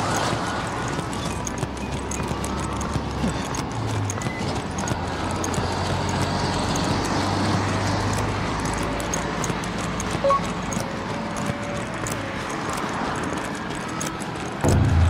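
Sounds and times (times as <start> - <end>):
road traffic: 0.0 - 15.0
vehicle engine hum: 0.0 - 15.0
short beep: 10.2 - 10.5.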